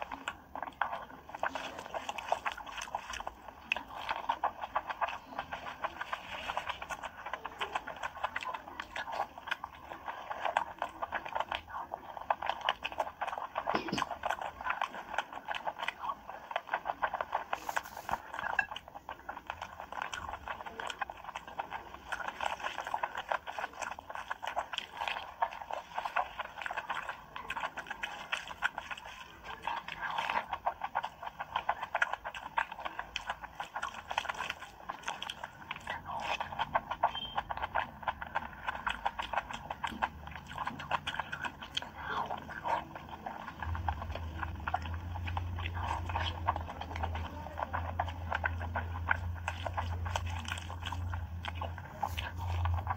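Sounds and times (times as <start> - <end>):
hand squishing soaked rice: 0.0 - 52.9
wet chewing and lip-smacking: 0.0 - 52.9.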